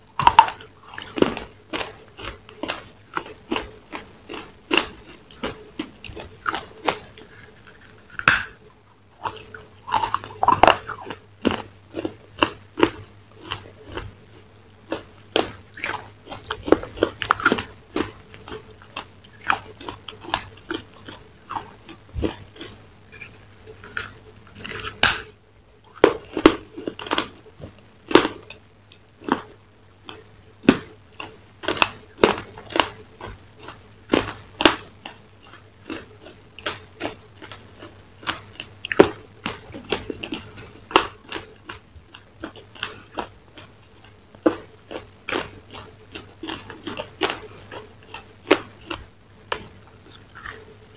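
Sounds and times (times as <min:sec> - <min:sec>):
person crunching food: 0:00.0 - 0:50.9.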